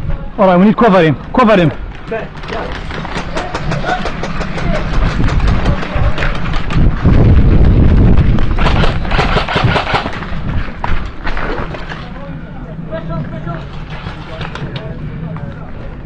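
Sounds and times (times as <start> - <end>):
wind rumble on microphone: 0.0 - 16.0
airsoft guns firing: 8.4 - 10.4.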